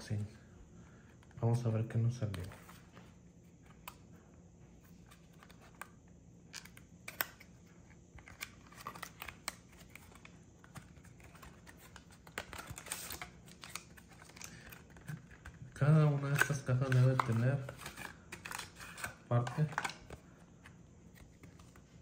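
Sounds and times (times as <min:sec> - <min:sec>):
card pack being opened: 0:08.1 - 0:20.2.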